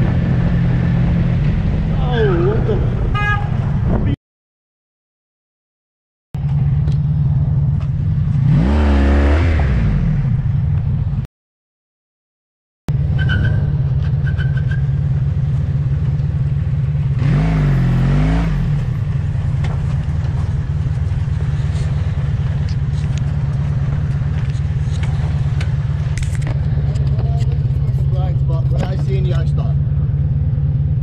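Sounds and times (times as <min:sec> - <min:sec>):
motorcycle engine revving: 0:06.4 - 0:10.8, 0:13.0 - 0:31.0
motorcycle engine running: 0:12.9 - 0:31.0.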